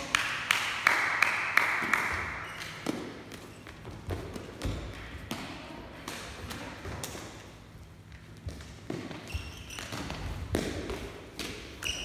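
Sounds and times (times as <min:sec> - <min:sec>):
sharp taps in reverberant hall: 0:00.0 - 0:12.0.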